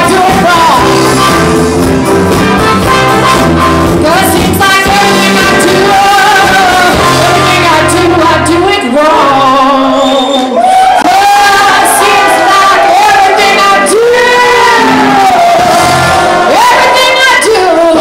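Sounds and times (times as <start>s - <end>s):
trumpet: 0.0s - 7.9s, 11.1s - 18.0s
live band playing: 0.0s - 9.9s, 11.0s - 18.0s
woman singing into a microphone: 4.0s - 10.4s, 11.1s - 15.6s, 16.5s - 18.0s.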